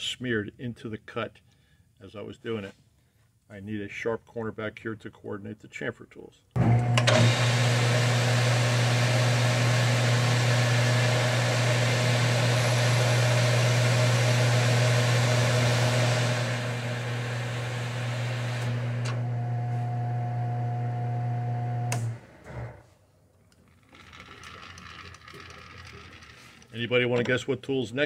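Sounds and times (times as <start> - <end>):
lathe motor hum: 6.6 - 22.8, 23.9 - 26.7.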